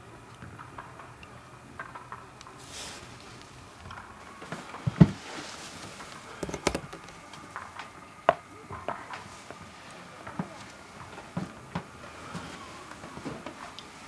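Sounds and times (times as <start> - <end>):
heavy picture frame thump: 6.4 - 7.2
sharp handling knocks: 6.4 - 7.3.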